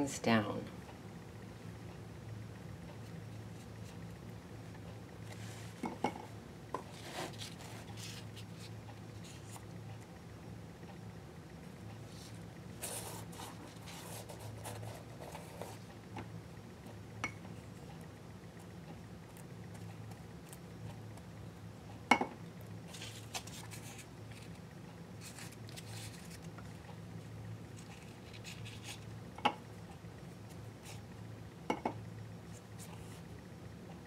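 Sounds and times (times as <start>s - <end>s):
low steady hum: 0.0s - 34.0s
brushing and paper rustle: 5.3s - 5.8s, 6.9s - 9.7s, 12.1s - 15.9s, 22.9s - 24.6s, 25.2s - 26.7s, 27.7s - 29.1s.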